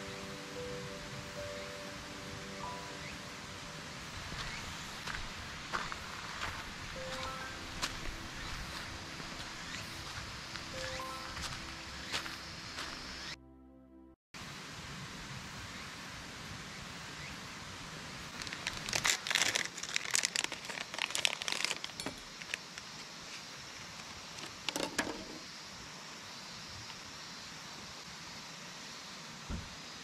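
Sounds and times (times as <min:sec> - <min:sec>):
plastic wrapper crinkling: 0:18.4 - 0:22.6.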